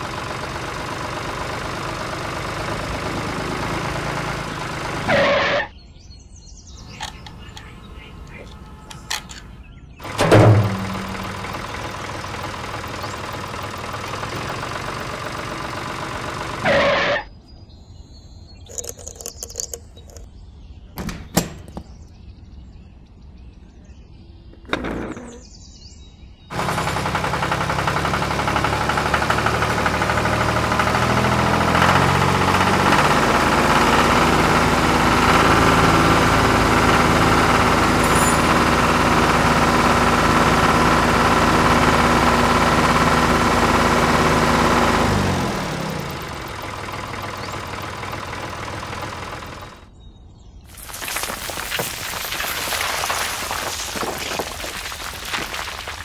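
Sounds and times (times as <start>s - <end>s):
tractor engine under load: 0.0s - 5.6s, 6.7s - 17.2s, 18.6s - 20.3s, 24.6s - 25.5s, 26.5s - 49.9s, 50.7s - 56.0s
small metallic clicks: 8.4s - 9.6s, 18.7s - 20.3s.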